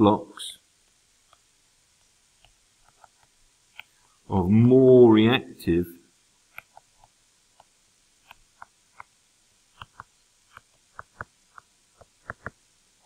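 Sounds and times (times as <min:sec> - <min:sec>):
stylus tapping on tablet screen: 0:06.5 - 0:09.1, 0:09.7 - 0:12.6.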